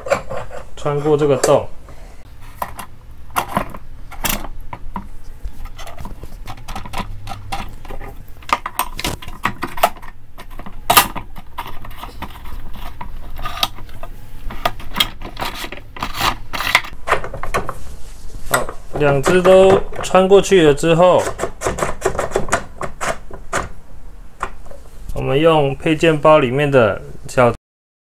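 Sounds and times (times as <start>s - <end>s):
metal rods clicking and scraping: 5.6s - 17.6s.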